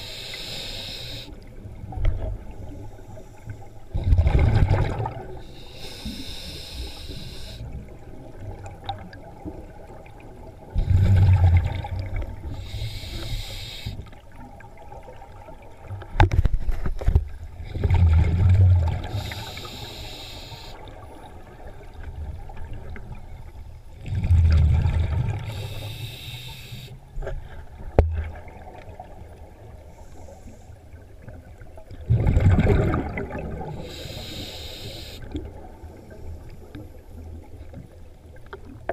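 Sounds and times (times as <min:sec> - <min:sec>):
regulator hiss on inhale: 0:00.0 - 0:01.4, 0:05.4 - 0:07.8, 0:12.5 - 0:14.2, 0:19.0 - 0:21.0, 0:25.5 - 0:27.0, 0:29.9 - 0:30.9, 0:33.7 - 0:35.4
bubbles burbling on exhale: 0:03.9 - 0:05.4, 0:10.7 - 0:12.4, 0:17.7 - 0:19.2, 0:24.0 - 0:25.6, 0:32.0 - 0:33.8.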